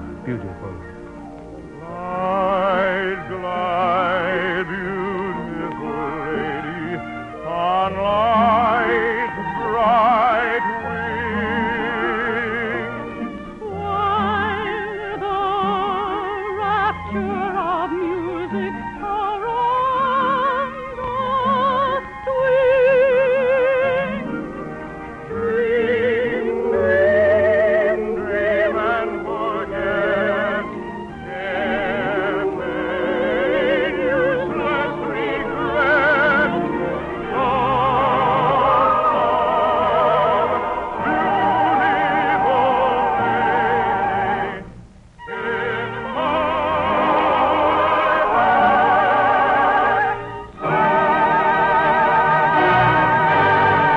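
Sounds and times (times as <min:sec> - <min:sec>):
orchestra playing: 0:00.0 - 0:53.9
operatic singing with vibrato: 0:01.7 - 0:53.9.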